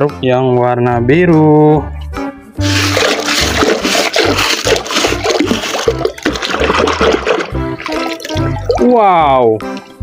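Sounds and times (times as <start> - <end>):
pebbles clattering: 2.6 - 7.6
water splashing and sloshing: 2.6 - 9.2.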